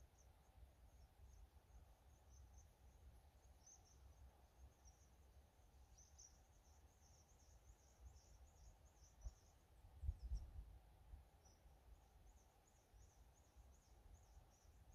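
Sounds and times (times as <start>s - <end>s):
faint high-pitched chirping: 0.0s - 14.9s
wind rumble on microphone: 9.2s - 10.8s.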